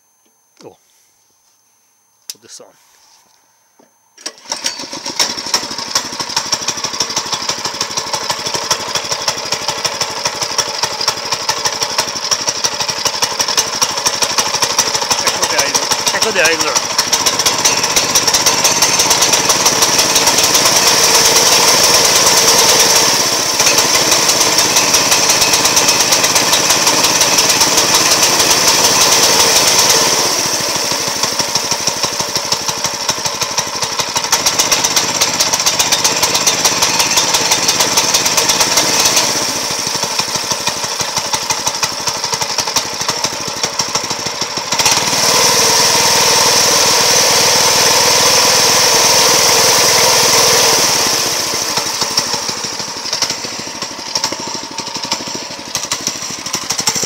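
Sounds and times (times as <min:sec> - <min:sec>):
small engine running steadily: 0:04.2 - 0:57.0.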